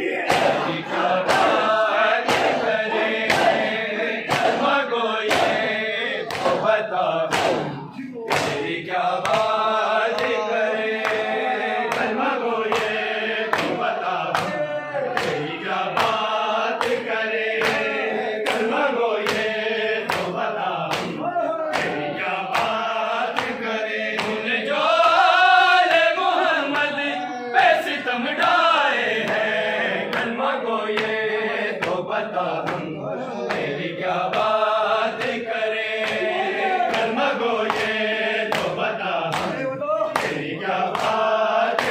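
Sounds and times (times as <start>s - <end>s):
men chanting in chorus: 0.0s - 41.9s
hands slapping bare chests: 0.3s - 24.4s, 31.8s - 32.9s, 33.5s - 36.3s, 36.9s - 41.9s.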